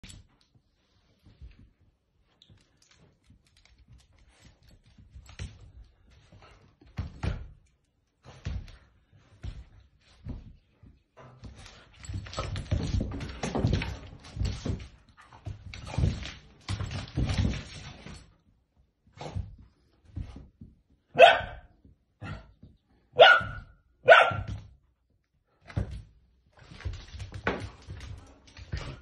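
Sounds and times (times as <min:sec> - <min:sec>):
dogs scuffling on wooden floor: 0:00.0 - 0:07.4, 0:08.2 - 0:18.4, 0:25.7 - 0:29.0.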